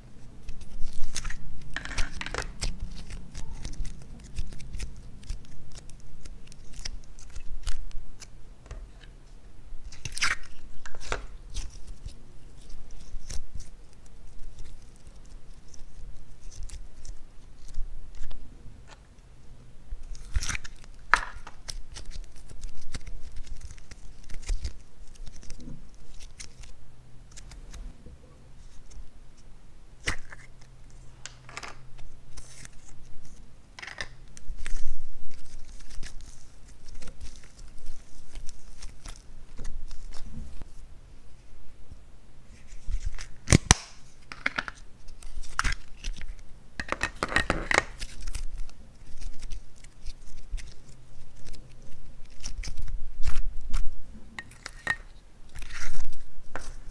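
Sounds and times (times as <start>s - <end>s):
slime being stretched and squeezed: 9.8s - 18.3s, 20.0s - 26.7s.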